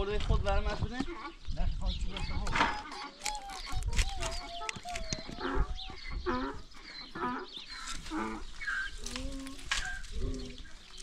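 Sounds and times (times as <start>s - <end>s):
chickens clucking: 0.6s - 11.0s.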